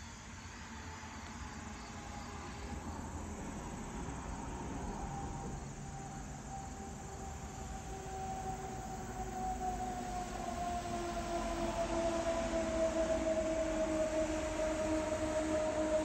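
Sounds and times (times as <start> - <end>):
faint insect chirping: 0.0 - 16.0
faint falling wailing tone: 4.1 - 16.0.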